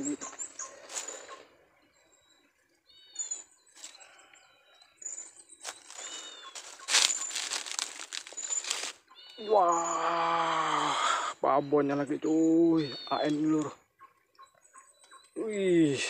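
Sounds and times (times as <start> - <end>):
bird chirping: 0.0 - 16.0
thin high bird whistles: 5.0 - 7.3.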